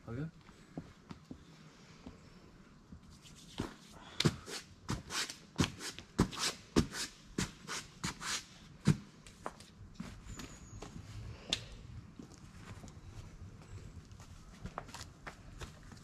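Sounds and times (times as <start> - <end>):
rubbing and scuffing strokes: 3.0 - 10.5.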